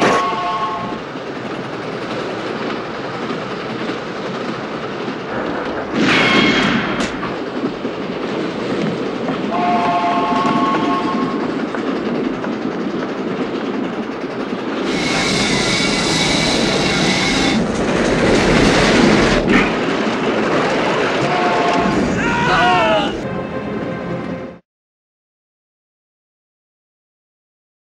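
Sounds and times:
train horn blasts: 0.0s - 1.0s, 9.5s - 11.4s, 21.2s - 22.0s
train wheels clattering on rails: 0.0s - 23.2s.

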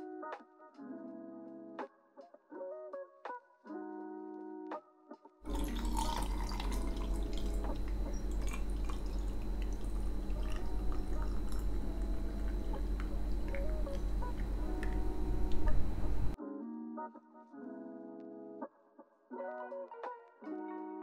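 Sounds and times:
ice clicking in glass: 5.5s - 11.8s
juice pouring over ice: 5.5s - 15.0s
steady low hum: 5.5s - 16.4s.

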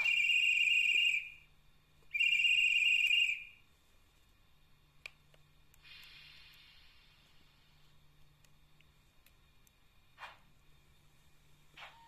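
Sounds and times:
click: 5.0s - 6.1s
soft hiss of steam: 5.7s - 7.9s.

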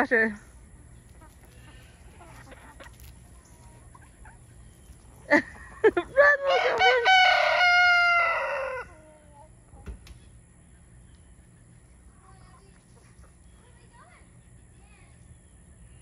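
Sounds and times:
rooster crowing: 6.2s - 9.1s.

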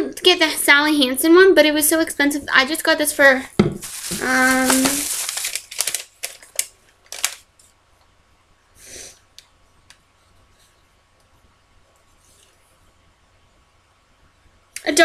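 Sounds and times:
plastic bag crinkling: 3.6s - 7.6s
paper rustle: 3.8s - 7.5s.

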